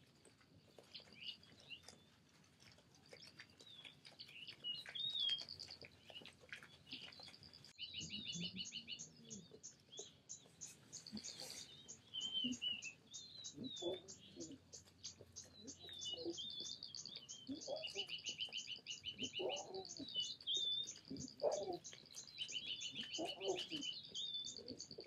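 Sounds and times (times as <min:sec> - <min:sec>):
paws walking through wet grass: 0:00.0 - 0:07.9, 0:10.0 - 0:24.3
birds singing: 0:00.7 - 0:02.2, 0:03.1 - 0:25.0.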